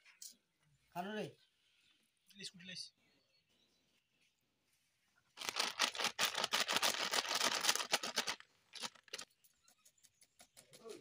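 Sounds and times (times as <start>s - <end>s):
loud crackling rustle: 5.4s - 9.3s.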